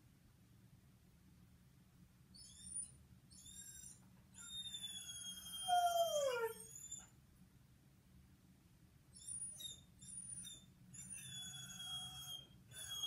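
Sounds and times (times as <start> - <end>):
dog howling: 4.9 - 6.7.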